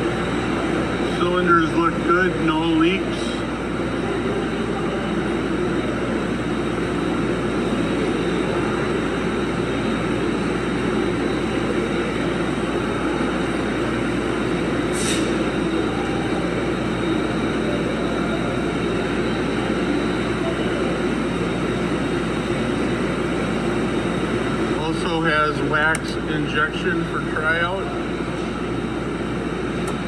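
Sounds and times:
industrial machinery drone: 0:00.0 - 0:30.0.

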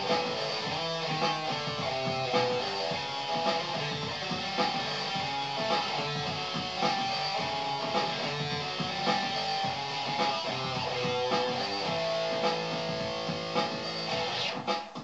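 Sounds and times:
electric guitar playing: 0:00.0 - 0:14.7.

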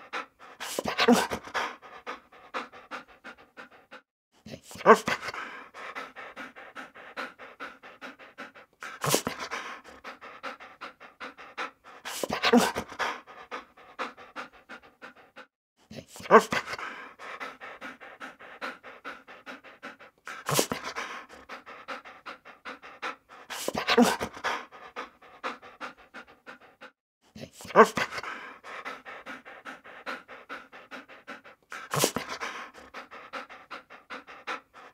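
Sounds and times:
dog panting: 0:00.0 - 0:34.9
bark-like sound: 0:04.7 - 0:06.2, 0:11.9 - 0:13.3, 0:16.2 - 0:17.1, 0:23.4 - 0:24.7, 0:27.6 - 0:29.1, 0:30.9 - 0:33.8.

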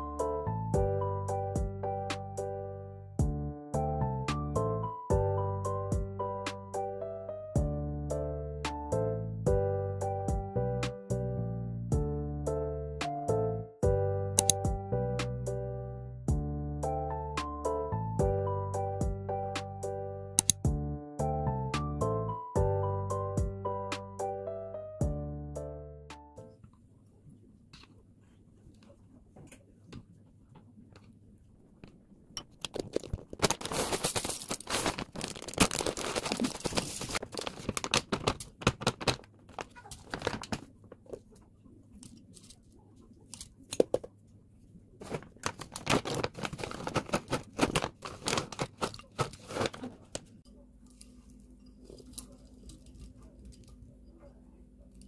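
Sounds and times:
plastic packaging crinkling and tearing: 0:32.5 - 0:41.3, 0:45.0 - 0:50.3.

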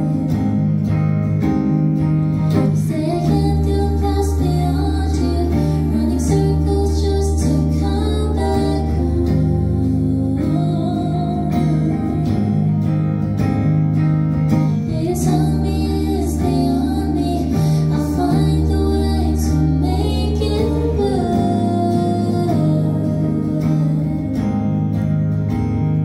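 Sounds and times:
woman singing: 0:00.0 - 0:01.0, 0:02.3 - 0:13.5, 0:14.6 - 0:25.0
electric guitar: 0:00.0 - 0:26.0
low bass notes: 0:00.0 - 0:26.0.

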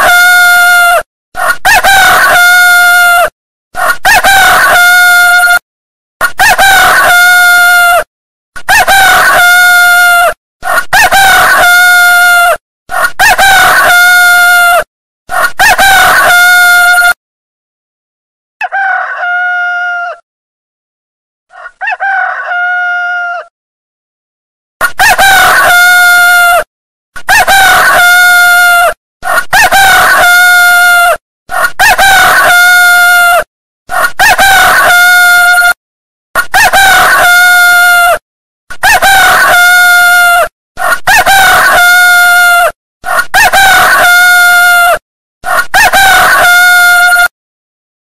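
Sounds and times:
rooster crowing: 0:00.0 - 0:05.6, 0:15.4 - 0:17.2, 0:18.6 - 0:20.2, 0:21.5 - 0:23.5, 0:27.3 - 0:35.8, 0:36.6 - 0:38.2, 0:38.8 - 0:47.3.

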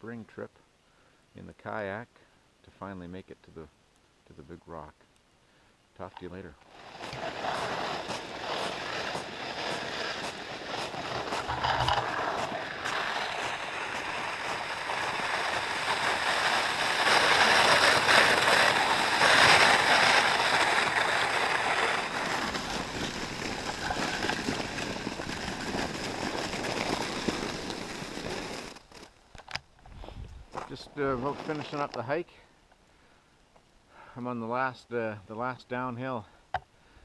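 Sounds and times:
footsteps crunching on snow: 0:06.7 - 0:29.2, 0:29.9 - 0:32.1.

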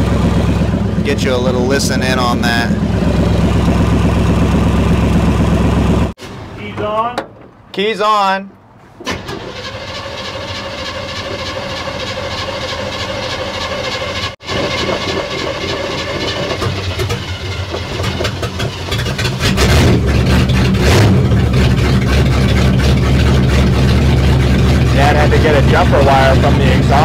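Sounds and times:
starter motor whine: 0:00.0 - 0:06.1
deep engine exhaust rumble: 0:00.0 - 0:06.2, 0:11.1 - 0:27.0.

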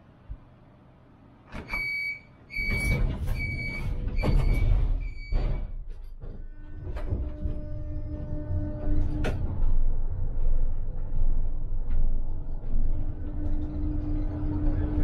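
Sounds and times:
tram door warning beeps: 0:01.5 - 0:05.8
low rumble: 0:03.4 - 0:15.0.

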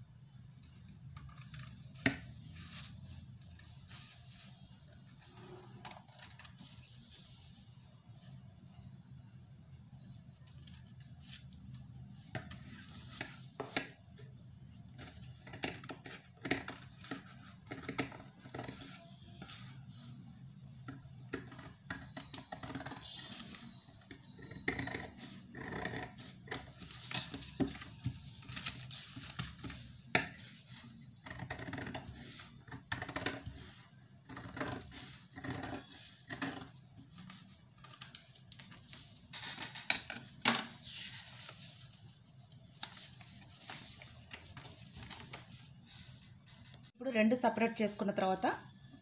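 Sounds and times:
paper rustling: 0:40.7 - 0:46.9.

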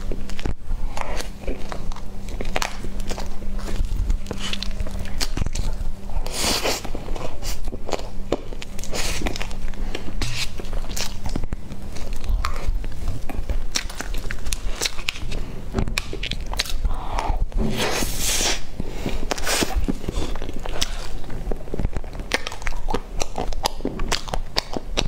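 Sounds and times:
wet chewing and smacking: 0:00.0 - 0:17.6, 0:18.6 - 0:25.0.

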